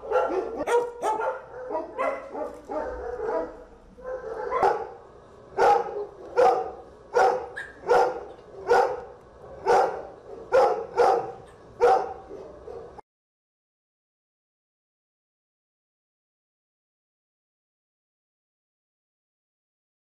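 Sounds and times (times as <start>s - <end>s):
dog barking sharply: 0.0s - 5.0s, 5.6s - 13.0s.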